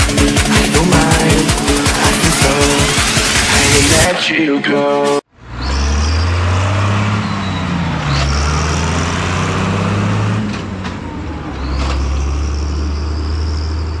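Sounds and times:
tractor diesel engine passing: 5.4 - 14.0.

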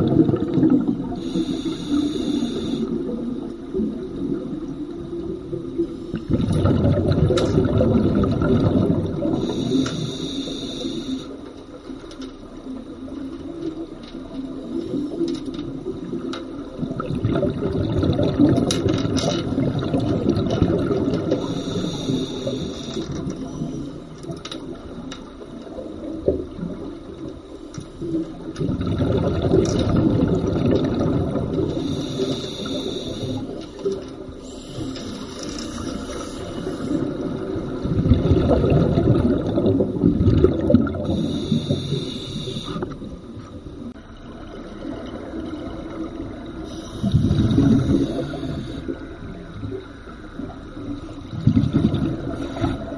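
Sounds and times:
scuba regulator bubbling exhalations: 0.0 - 11.2, 15.8 - 24.0, 28.0 - 43.9, 45.2 - 49.8, 51.2 - 52.9
regulator hiss: 1.1 - 3.5, 9.2 - 11.5, 21.3 - 24.0, 31.7 - 37.3, 41.1 - 43.2, 46.6 - 49.3.

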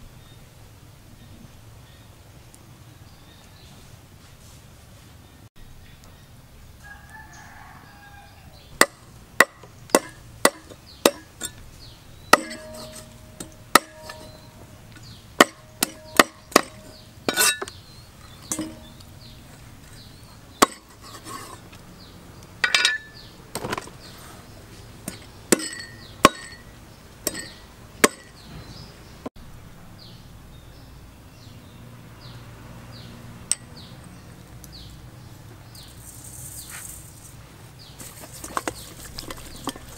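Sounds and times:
cleaver chopping on wooden block: 8.8 - 11.6, 12.3 - 17.8, 20.6 - 21.0, 25.1 - 26.6, 27.3 - 28.4.

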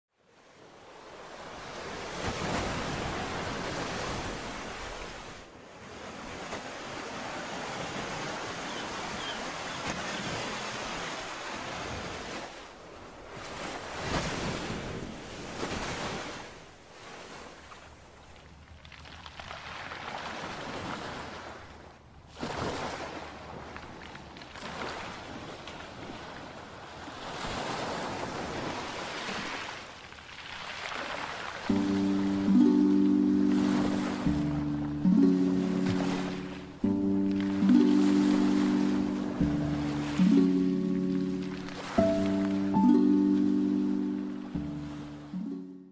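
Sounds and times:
sea waves washing in: 0.3 - 17.8, 27.2 - 45.8.

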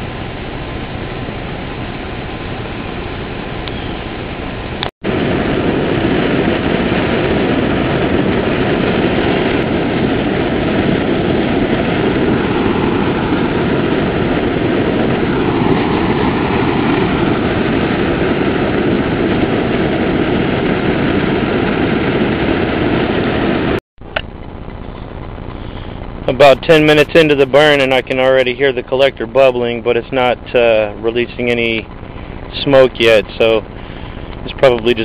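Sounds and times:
furnace blower rushing: 0.0 - 23.8.

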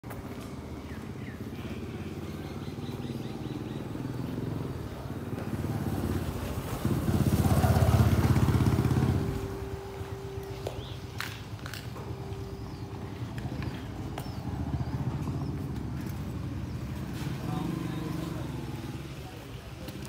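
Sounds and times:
motorcycle engine passing by: 0.2 - 20.0.

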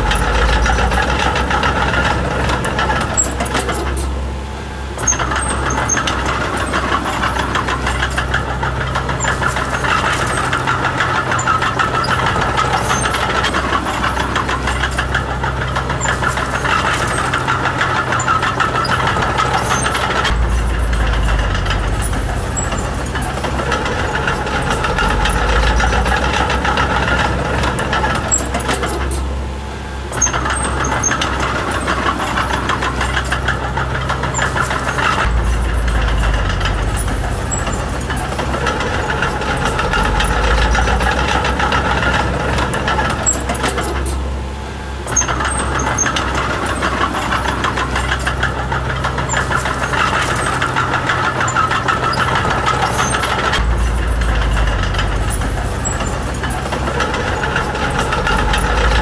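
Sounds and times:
bulldozer diesel engine running hard: 0.0 - 59.0.

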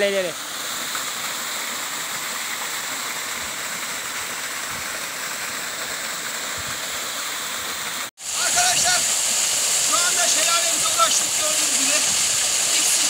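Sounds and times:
waterfall splashing: 0.0 - 13.0.

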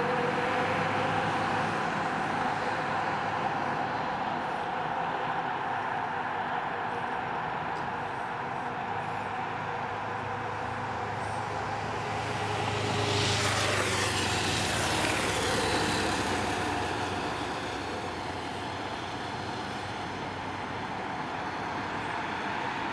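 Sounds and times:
street traffic noise: 0.0 - 22.9
vehicle passing by: 8.7 - 22.9.

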